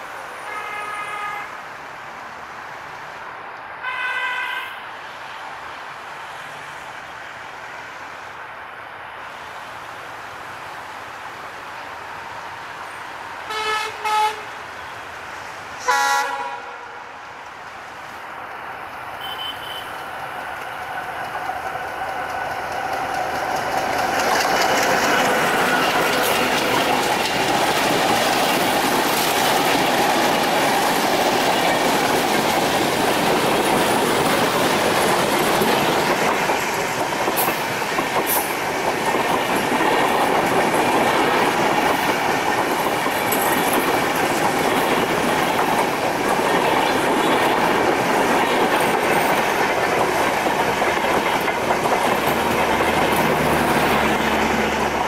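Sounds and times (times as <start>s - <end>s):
train passing close by: 0.0s - 55.0s
diesel locomotive horn blasts: 0.4s - 1.5s, 3.8s - 4.8s, 13.5s - 14.5s, 15.8s - 17.1s, 19.2s - 20.0s
wheels clattering over rail joints: 20.0s - 55.0s.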